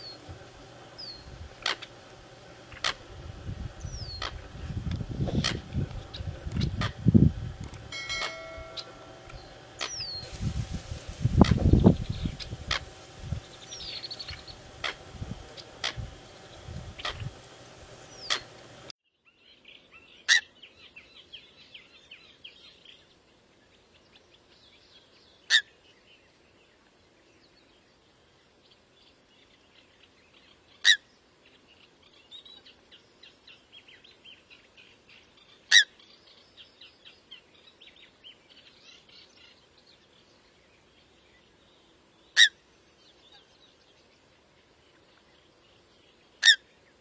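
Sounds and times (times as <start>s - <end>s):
faint twittering: 0.0s - 18.9s.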